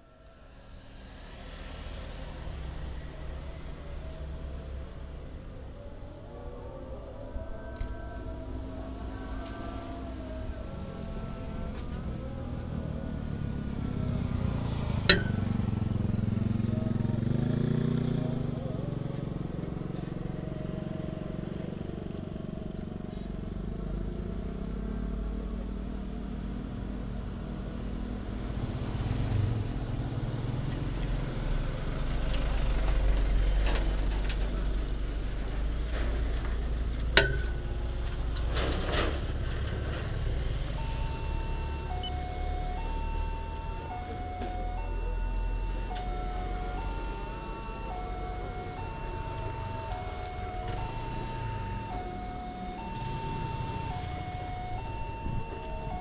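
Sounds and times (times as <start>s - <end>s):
truck engine pulling away: 0.0s - 56.0s
motorcycle passing by: 0.1s - 56.0s
sharp metallic clank: 15.1s - 15.8s, 37.2s - 37.9s
metallic clink: 15.1s - 16.3s, 37.2s - 37.8s.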